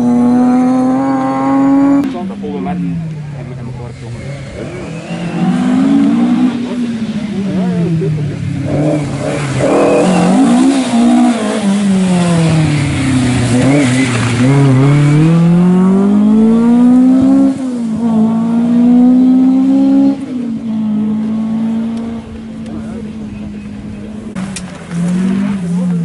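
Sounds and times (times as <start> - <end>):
gear upshifts: 0.0 - 26.0
rally car engine accelerating: 0.0 - 26.0.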